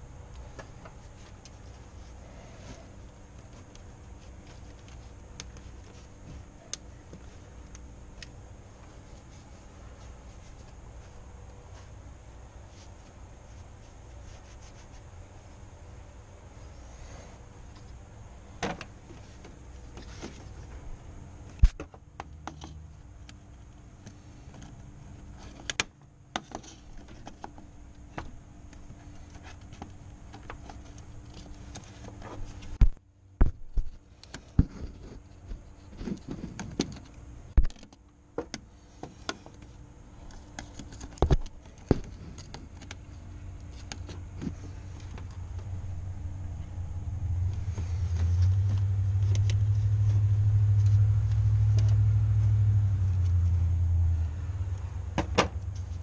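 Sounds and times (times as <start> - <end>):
low steady background noise: 0.0 - 56.0
hands handling car parts: 0.1 - 53.6
low rumble: 44.6 - 56.0.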